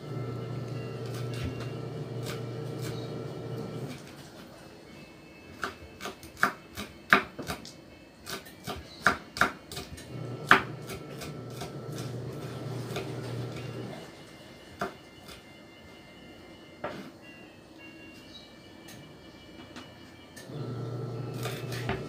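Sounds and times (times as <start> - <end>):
knife chopping on wooden board: 5.6 - 7.7, 8.3 - 12.1.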